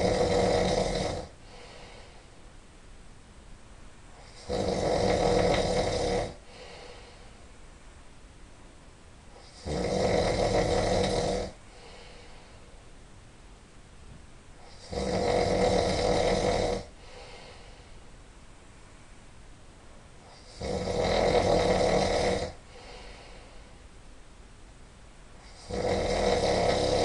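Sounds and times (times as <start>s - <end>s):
man snoring: 0.0s - 2.0s, 4.2s - 7.2s, 9.4s - 12.2s, 14.6s - 17.7s, 20.3s - 23.3s, 25.4s - 27.0s
faint breathing: 1.1s - 2.5s, 6.0s - 7.5s, 11.5s - 12.9s, 16.8s - 18.2s, 22.4s - 23.9s.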